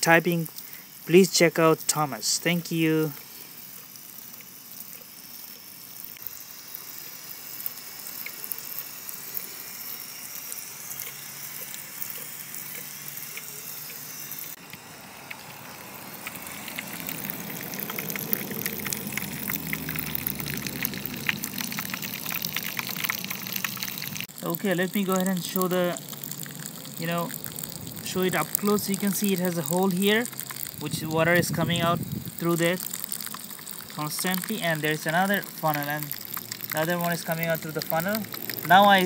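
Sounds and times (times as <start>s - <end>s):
sprinkler spraying water: 0.0s - 39.0s.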